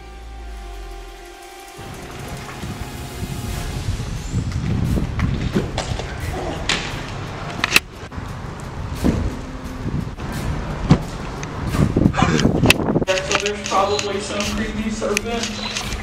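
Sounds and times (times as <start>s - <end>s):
sharp knocks and thumps: 9.0s - 9.4s.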